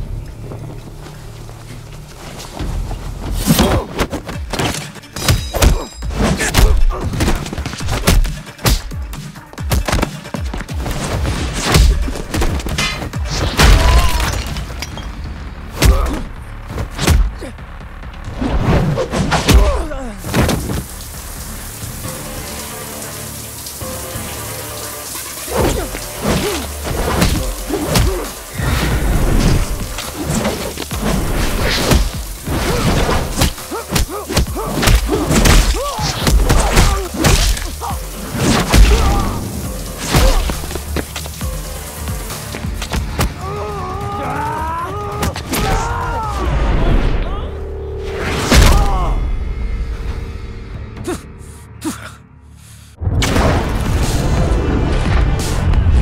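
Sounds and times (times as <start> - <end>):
punch and kick impacts: 5.3 - 9.0, 9.6 - 14.3, 15.7 - 17.5, 26.4 - 28.3, 31.7 - 37.8, 38.4 - 39.3
spraying water hiss: 20.0 - 43.6.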